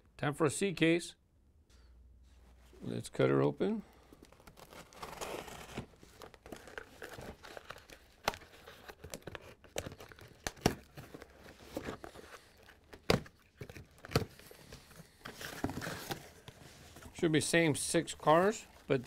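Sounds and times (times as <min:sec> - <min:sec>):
cardboard and tape tearing: 0:04.3 - 0:17.0.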